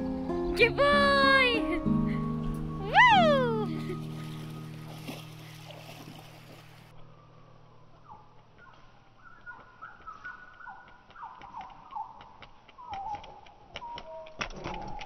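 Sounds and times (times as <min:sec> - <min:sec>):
birds singing: 0:02.7 - 0:15.0
dog paws tapping on tarmac: 0:08.4 - 0:15.0.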